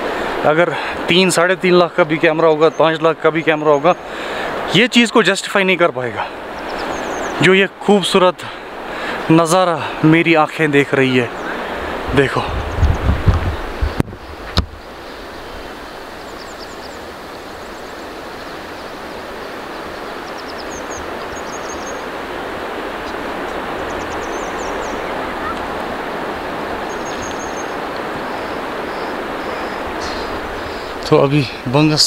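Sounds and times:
steady rushing hiss: 0.0 - 32.0
faint high bird chirps: 6.6 - 7.4, 16.2 - 22.1, 23.8 - 25.7, 26.8 - 31.1.

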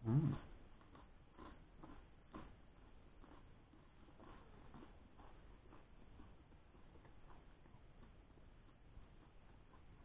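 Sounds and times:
person humming closed-mouth: 0.0 - 0.5
person chewing: 0.0 - 10.0.

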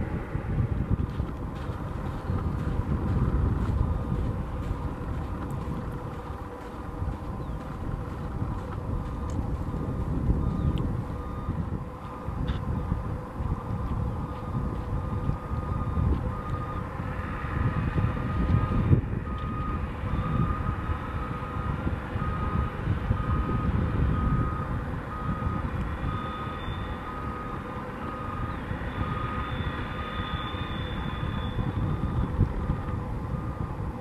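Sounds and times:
low rumble: 0.0 - 34.0
back-up beeper beeps: 9.9 - 12.3, 18.2 - 33.6.

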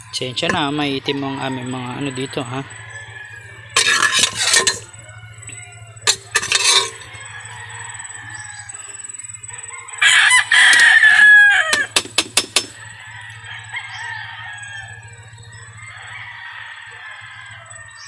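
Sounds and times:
rooster crowing: 0.0 - 18.0
spatula scraping a steel wok: 3.6 - 5.0, 6.0 - 7.2.

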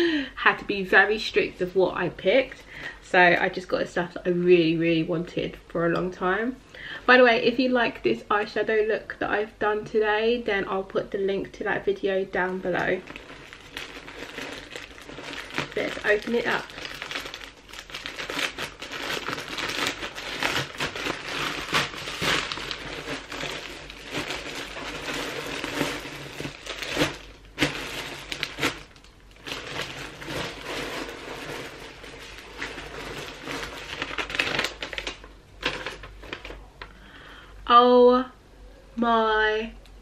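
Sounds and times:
plastic packaging crinkling: 12.2 - 36.9.

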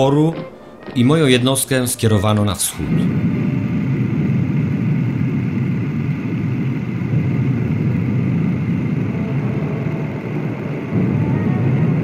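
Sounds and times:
low engine-like rumble: 2.8 - 12.0.

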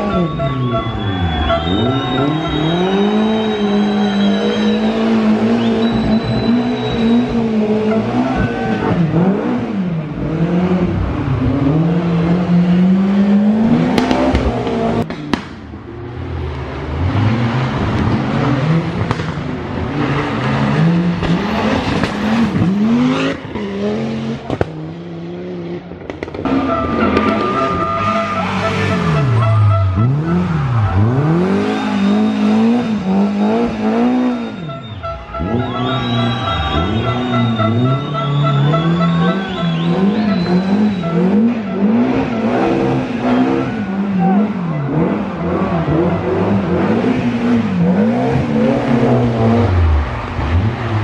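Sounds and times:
rally car engines revving: 0.0 - 51.0.

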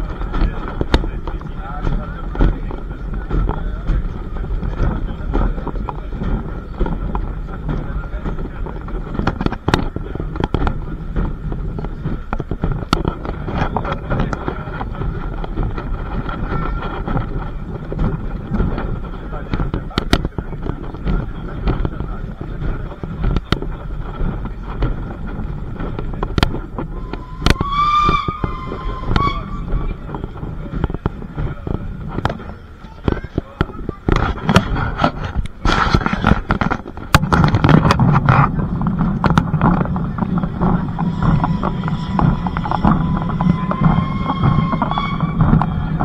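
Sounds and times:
sharp clacks and knocks: 0.0 - 46.0
train rumble: 0.0 - 46.0
high ringing tone: 27.0 - 30.0, 40.9 - 46.0.

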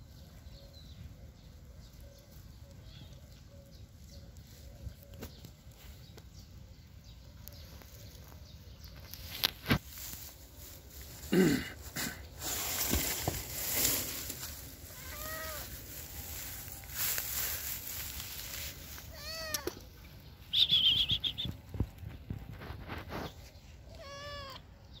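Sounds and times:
grass rustling: 7.4 - 24.5
cat meowing: 14.9 - 15.7, 19.1 - 19.7, 23.9 - 24.6
high chirping trill: 20.5 - 21.6.

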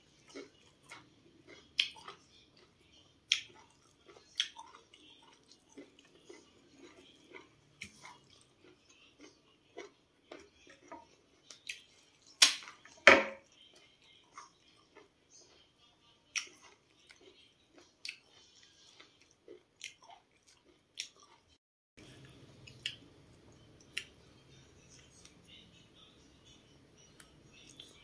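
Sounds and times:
faint steady background noise: 0.0 - 28.0
corn cob snapping: 12.4 - 12.7.

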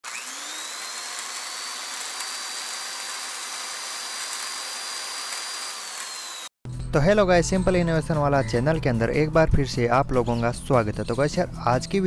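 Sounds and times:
small gear motor whining: 0.0 - 6.5.

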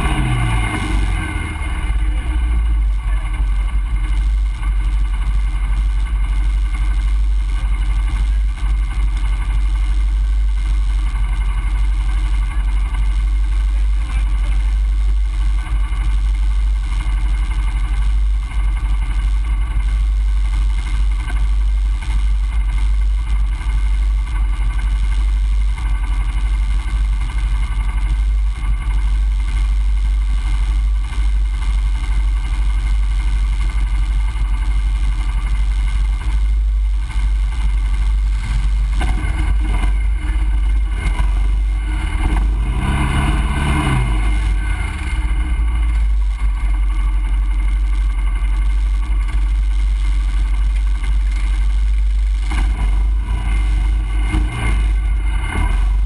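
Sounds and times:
atv engine revving: 0.0 - 20.1, 20.8 - 56.0
atv engines idling: 0.0 - 56.0.

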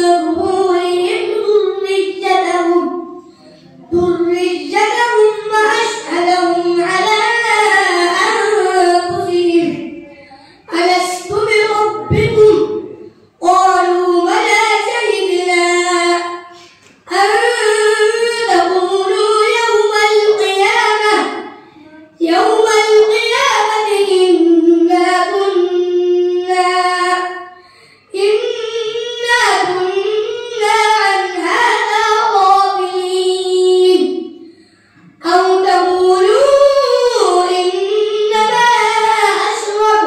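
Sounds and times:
boy reciting melodically into microphone: 0.0 - 40.0
boy breathing: 10.1 - 10.7.

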